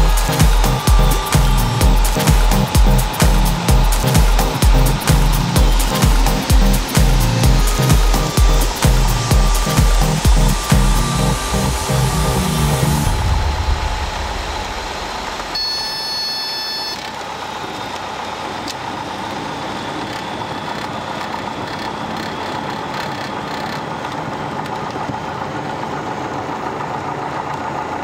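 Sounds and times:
propeller aircraft engine running: 0.0 - 15.6, 17.1 - 28.0
steady high tone: 0.0 - 17.1.

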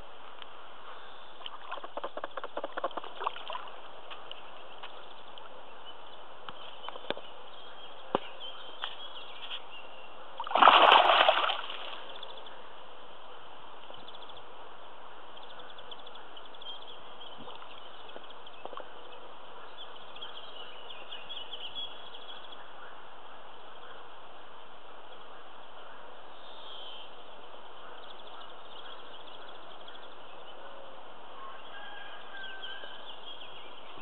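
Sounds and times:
fish splashing in shallow water: 1.4 - 3.8, 10.4 - 12.2.

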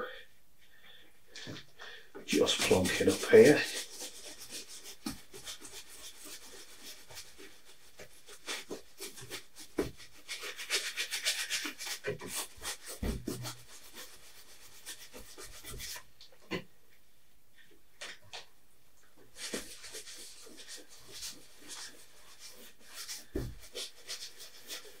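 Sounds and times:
brush scrubbing paint on canvas: 2.3 - 16.2, 19.3 - 25.0.

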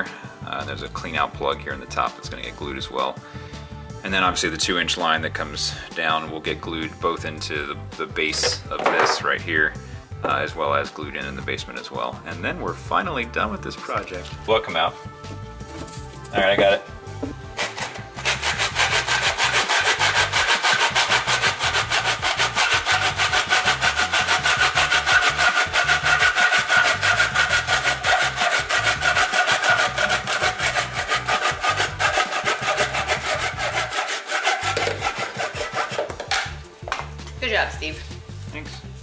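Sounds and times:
hand saw cutting plastic pipe: 8.2 - 9.2, 17.2 - 36.5.

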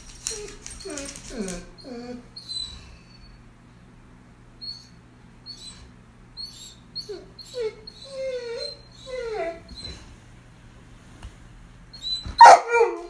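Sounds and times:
dog whining: 0.1 - 3.4, 4.6 - 10.1, 11.9 - 13.0.

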